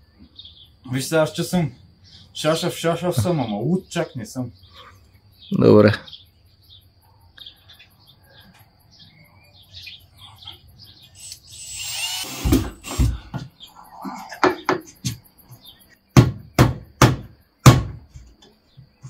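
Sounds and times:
cordless drill whirring: 11.2s - 13.2s
sharp knocks on wood: 14.4s - 15.2s, 16.1s - 18.3s.

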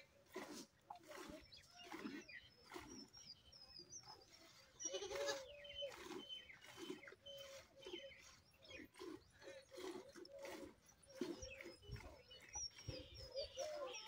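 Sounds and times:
goat bleating: 4.8s - 5.6s.

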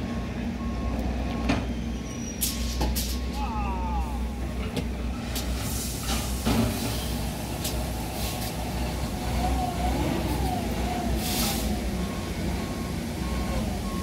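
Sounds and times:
diesel machinery rumbling: 0.0s - 14.0s
reversing alarm beeping: 9.6s - 14.0s.

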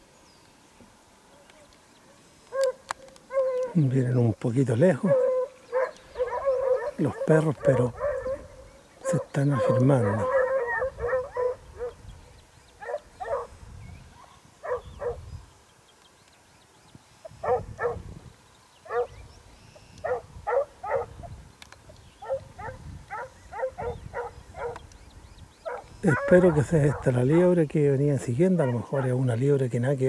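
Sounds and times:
distant dogs baying: 2.5s - 3.9s, 4.8s - 12.1s, 12.7s - 15.3s, 17.3s - 18.1s, 18.8s - 19.2s, 20.0s - 21.4s, 22.2s - 24.9s, 25.6s - 29.4s.

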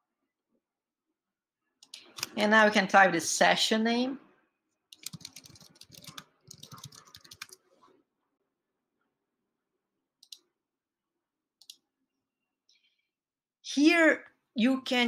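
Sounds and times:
computer keyboard typing: 4.9s - 7.6s.

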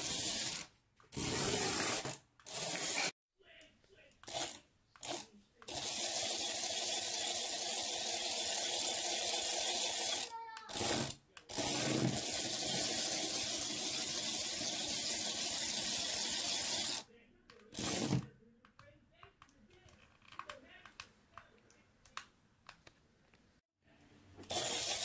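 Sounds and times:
toy electric motor whirring: 0.0s - 3.1s, 4.2s - 17.1s, 17.7s - 18.2s, 24.4s - 25.0s.

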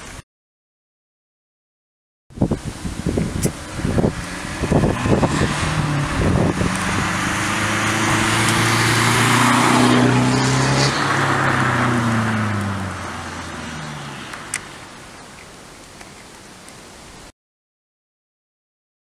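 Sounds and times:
car driving past: 3.5s - 14.9s.

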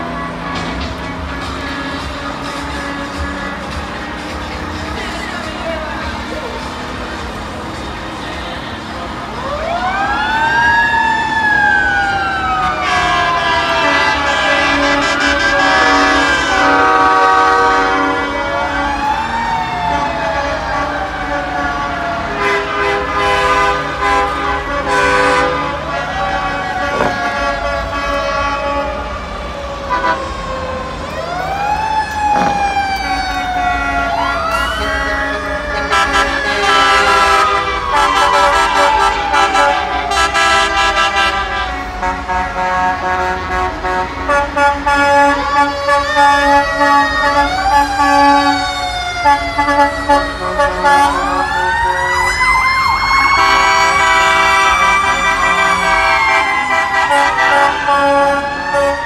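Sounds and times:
truck air horn blasts: 0.0s - 3.8s, 12.6s - 19.0s, 19.9s - 30.4s, 32.2s - 52.4s, 53.1s - 59.0s
sirens wailing: 0.0s - 59.0s
truck engines rumbling: 0.0s - 59.0s.

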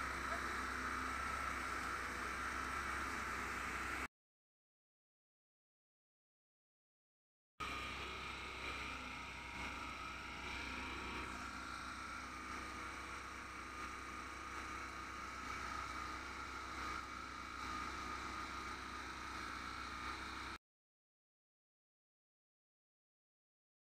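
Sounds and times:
high machine whine: 0.0s - 4.1s, 7.6s - 20.6s
thresher machine drone: 0.0s - 4.1s, 7.6s - 20.6s.

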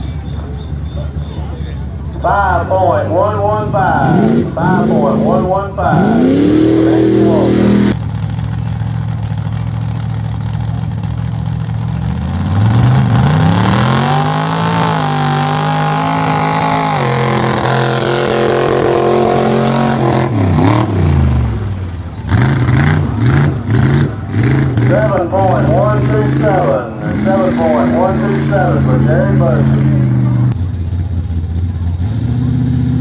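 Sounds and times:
engine revving: 0.0s - 8.0s, 11.5s - 30.7s, 31.6s - 33.0s.

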